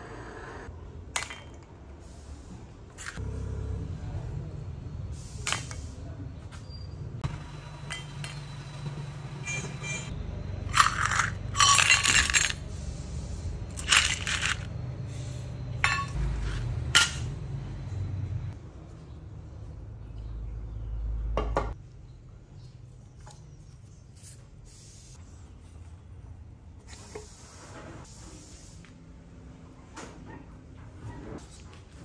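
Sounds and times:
metal bolts clinking in steel cup: 0:10.7 - 0:12.6, 0:13.7 - 0:14.7.

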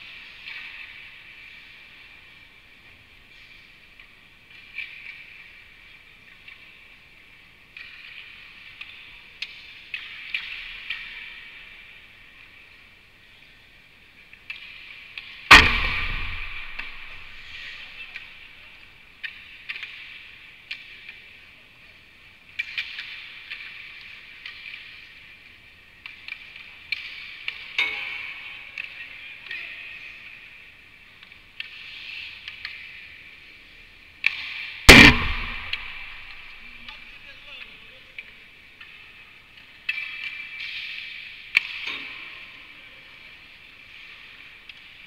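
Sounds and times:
hockey sticks and pucks clicking: 0:00.0 - 0:15.5, 0:17.5 - 0:34.8, 0:36.7 - 0:45.0
puck banging rink boards: 0:15.5 - 0:18.4.

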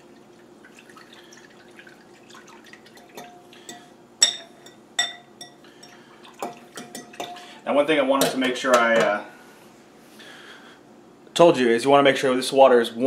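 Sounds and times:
liquid swishing: 0:00.0 - 0:03.6
utensil clinking against glass: 0:03.0 - 0:07.5.

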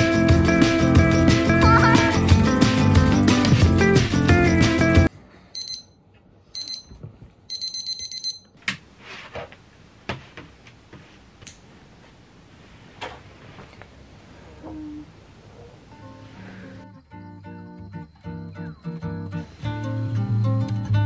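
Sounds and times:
alarm clock beeping: 0:05.6 - 0:06.0, 0:06.6 - 0:08.5.

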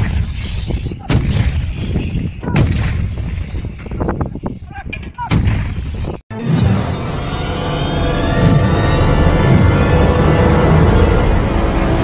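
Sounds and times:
howitzer shots with low rumble: 0:00.0 - 0:04.2, 0:05.2 - 0:06.2.

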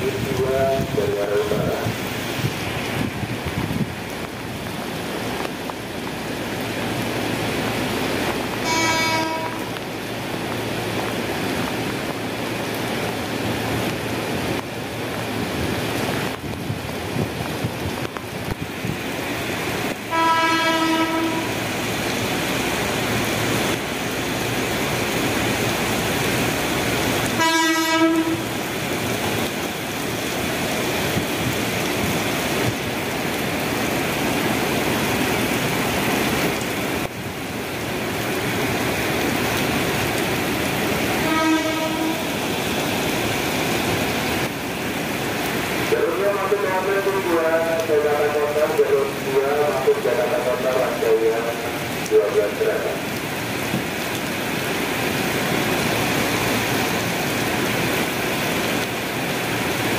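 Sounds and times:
heavy rain hissing: 0:00.0 - 0:59.9
train horn blasts: 0:08.6 - 0:09.8, 0:20.1 - 0:21.6, 0:27.4 - 0:28.5, 0:41.2 - 0:42.4.

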